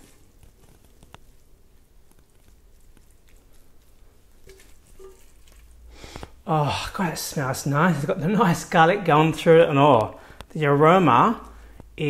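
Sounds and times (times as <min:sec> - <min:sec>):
soft handling sounds: 0:00.0 - 0:06.5.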